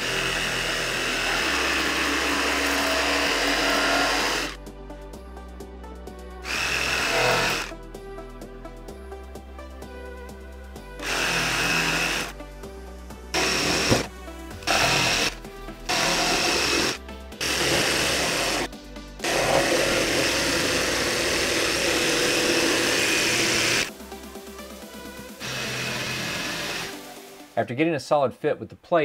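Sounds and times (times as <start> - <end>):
jigsaw cutting plywood: 0.0 - 4.6, 6.4 - 7.7, 11.0 - 12.3, 13.4 - 23.9, 25.4 - 27.0.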